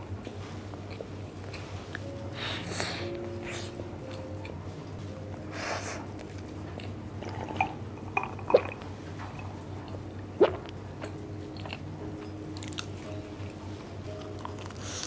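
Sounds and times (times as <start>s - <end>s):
person chewing food: 9.9s - 13.2s, 14.2s - 15.0s.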